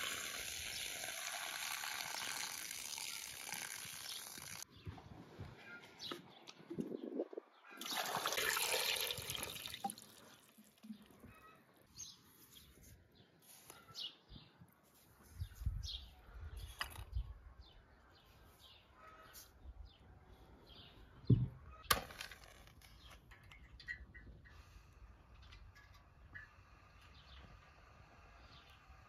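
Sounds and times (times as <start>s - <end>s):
pouring into a metal pot: 0.0s - 4.6s, 7.8s - 11.1s
birds chirping: 10.8s - 14.6s.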